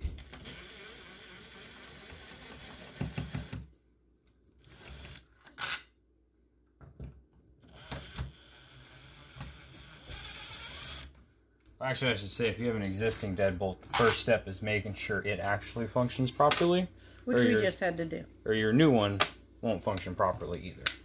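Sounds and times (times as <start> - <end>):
cordless drill running: 0.1 - 3.6, 4.6 - 5.8, 7.6 - 11.1.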